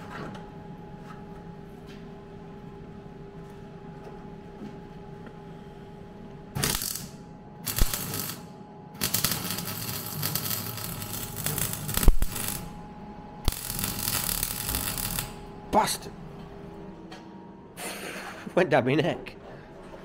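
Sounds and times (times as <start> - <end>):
welder arc crackling and sputtering: 6.6 - 12.8, 13.4 - 15.9.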